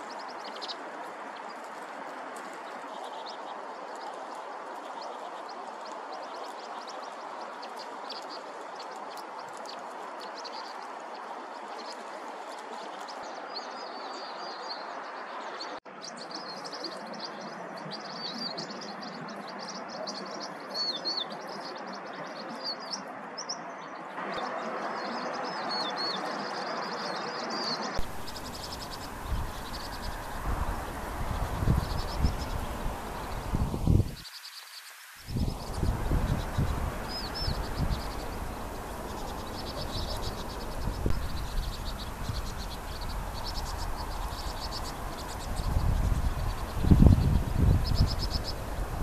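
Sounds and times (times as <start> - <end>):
birds twittering chirps: 0.0 - 49.0
background hiss: 28.0 - 49.0
low rumbling noise: 35.3 - 49.0.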